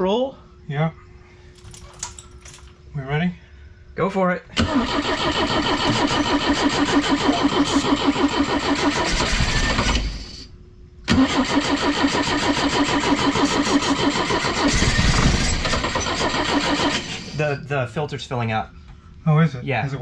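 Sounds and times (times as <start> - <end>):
engine cranking on starter: 4.6 - 10.5, 11.1 - 17.5.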